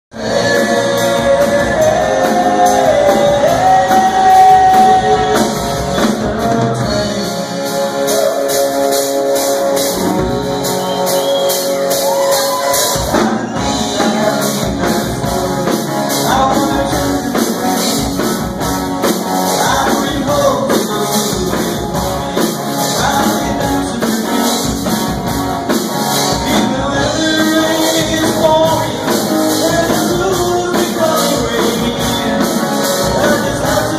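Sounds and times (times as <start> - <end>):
man singing lead vocal: 0.1 - 9.1, 12.5 - 33.9
drum kit: 0.1 - 33.9
electric guitars: 0.1 - 33.9
keyboard: 0.1 - 33.9.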